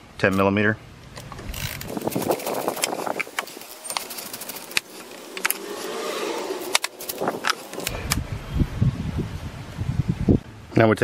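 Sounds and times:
metal clicks and scraping: 1.1s - 8.2s
ratchet wrench clicking: 1.5s - 5.8s, 6.6s - 8.0s.

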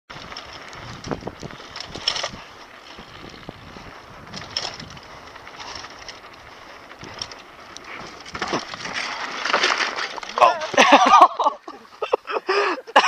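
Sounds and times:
wind rushing over microphone: 0.1s - 7.4s
bike knocking over bumps: 0.1s - 11.4s
bike rattling: 0.1s - 13.0s.

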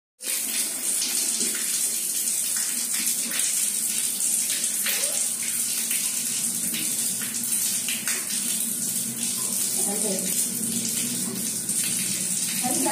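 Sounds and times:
tap water splashing on tiles: 0.2s - 12.9s.

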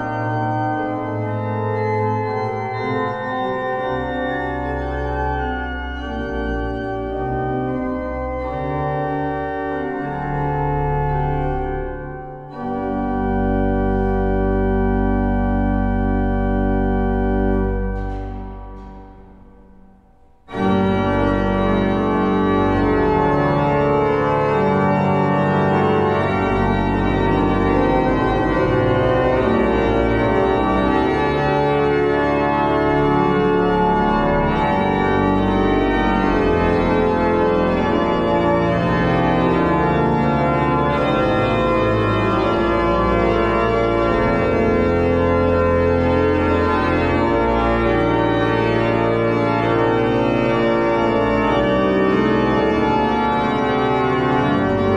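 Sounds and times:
pipe organ chords: 0.0s - 54.9s.

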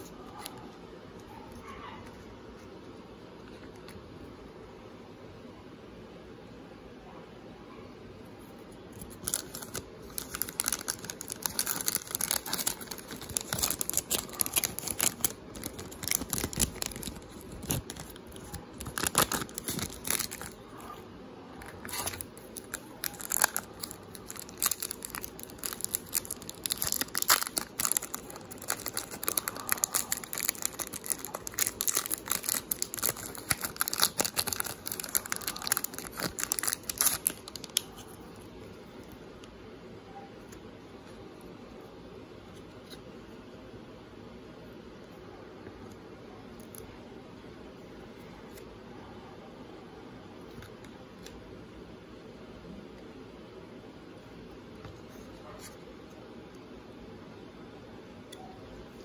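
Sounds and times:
foil wrapper crinkling: 9.0s - 20.8s, 21.6s - 38.2s.

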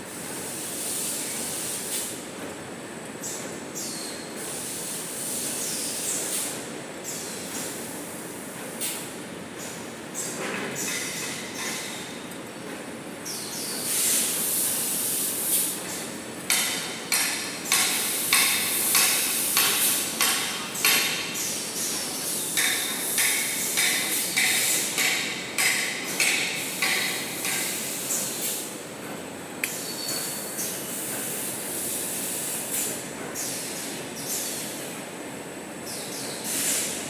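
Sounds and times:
rhythmic clatter of sharp strokes: 13.8s - 34.3s.

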